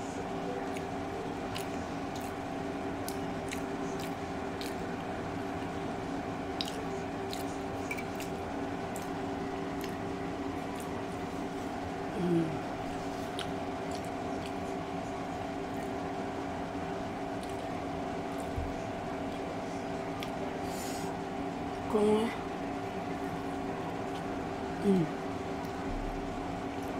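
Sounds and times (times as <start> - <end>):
steady background hum: 0.0 - 26.9
wet eating squishes: 0.6 - 11.8, 12.7 - 16.1, 17.2 - 18.6
person humming: 12.1 - 12.6, 24.8 - 25.2.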